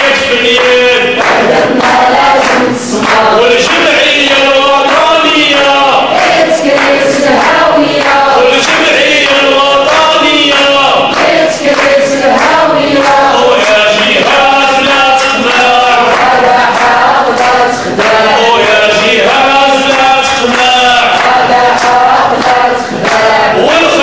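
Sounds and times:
man chanting into a microphone: 0.0s - 7.2s, 8.0s - 11.8s, 13.0s - 24.0s.

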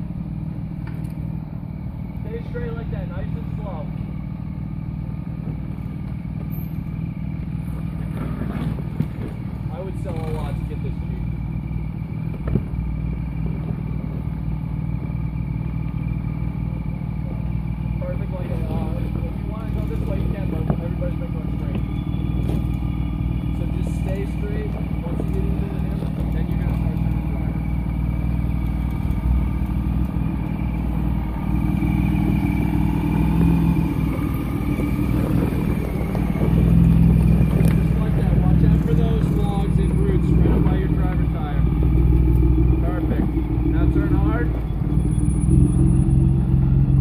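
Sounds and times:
engine running at low revs: 0.0s - 47.0s.

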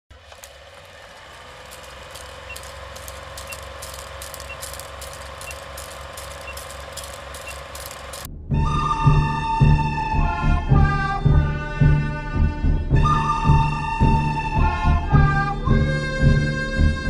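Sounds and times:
film crackles and pops: 0.1s - 8.3s
film projector running hum: 0.1s - 8.3s.

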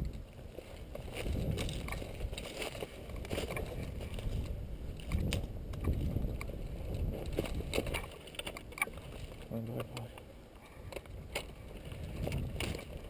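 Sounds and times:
low microphone rumble: 0.0s - 8.0s
footsteps crunching on dry brush: 0.1s - 9.8s.

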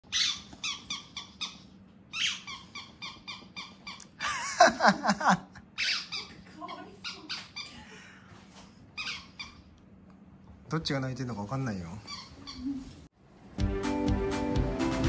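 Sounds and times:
squeaky toy squeaking: 0.0s - 4.2s, 5.8s - 7.8s, 9.0s - 9.7s, 12.0s - 12.8s
person laughing loudly: 4.2s - 5.6s.

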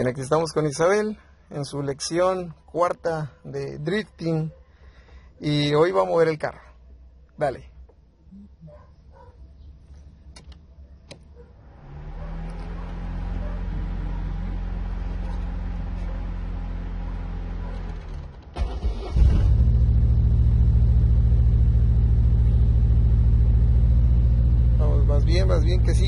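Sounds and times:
car engine cranking and starting: 11.8s - 26.0s.

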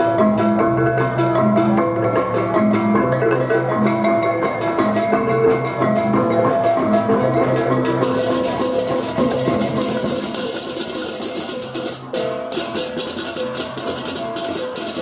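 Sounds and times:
drums: 0.0s - 15.0s
clashing cymbals: 8.0s - 15.0s
kettle gong melody: 8.0s - 15.0s.

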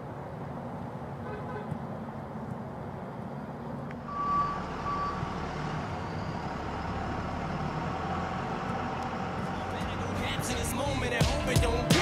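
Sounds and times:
low outdoor rumble: 0.0s - 12.0s
electronic beeps: 4.1s - 5.3s.

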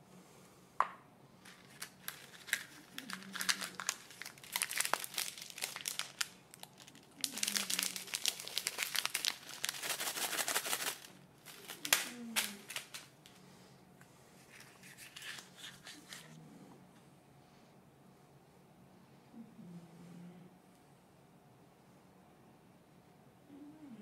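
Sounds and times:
foil wrapper crinkling: 1.4s - 13.4s, 14.4s - 16.4s.

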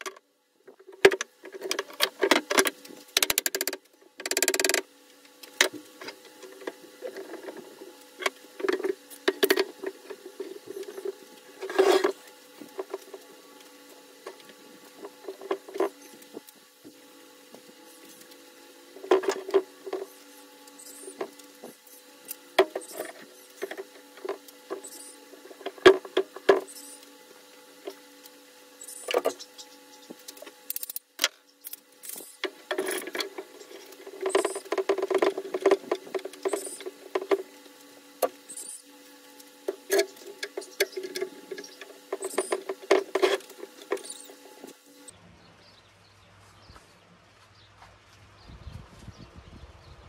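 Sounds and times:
wood strips and clamps clicking: 0.8s - 13.7s, 30.1s - 38.8s, 39.4s - 44.8s.

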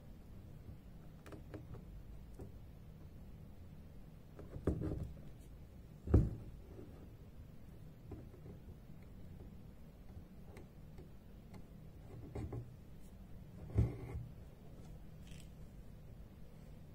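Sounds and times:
thread rustling: 14.7s - 15.8s.

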